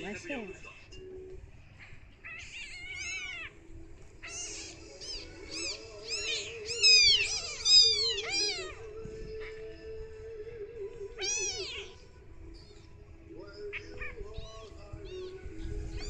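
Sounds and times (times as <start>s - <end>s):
kitten mewing: 2.2s - 3.5s, 4.2s - 8.8s, 11.2s - 12.0s.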